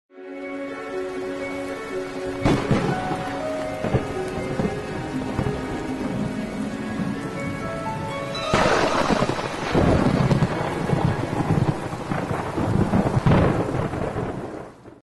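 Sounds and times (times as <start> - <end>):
rain: 0.2 - 15.0
rolling thunder: 2.3 - 15.0
thunderclap: 2.4 - 15.0.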